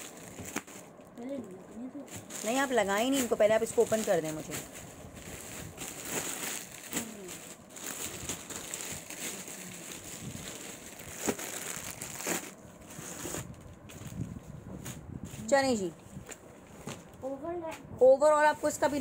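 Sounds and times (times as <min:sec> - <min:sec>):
plastic bags crinkling: 0:00.0 - 0:14.4.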